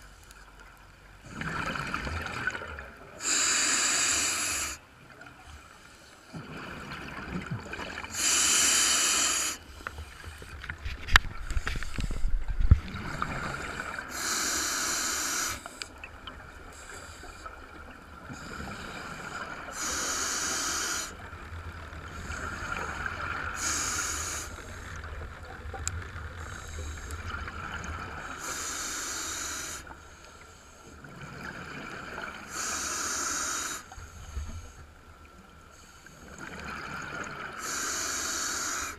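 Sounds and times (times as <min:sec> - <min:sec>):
diver breathing through regulator: 0:03.2 - 0:04.8, 0:08.1 - 0:10.2, 0:13.1 - 0:15.9, 0:18.3 - 0:21.2, 0:23.6 - 0:24.9, 0:28.4 - 0:30.8, 0:32.5 - 0:34.8, 0:37.6 - 0:38.9
rush of air bubbles: 0:06.4 - 0:08.2.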